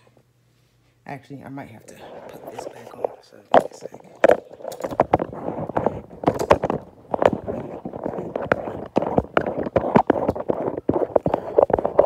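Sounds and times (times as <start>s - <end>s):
handling noise rubbing and rustling: 1.8s - 12.0s
sharp knocks and clicks: 3.6s - 12.0s.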